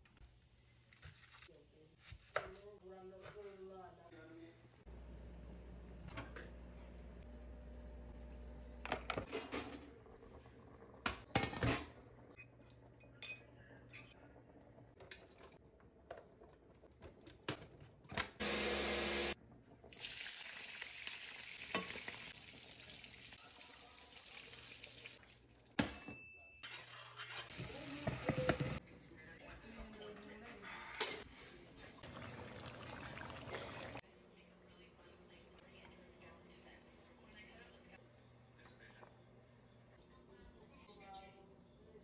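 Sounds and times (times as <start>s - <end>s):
blender running: 18.4s - 19.4s
onions sizzling in hot oil: 19.9s - 25.2s.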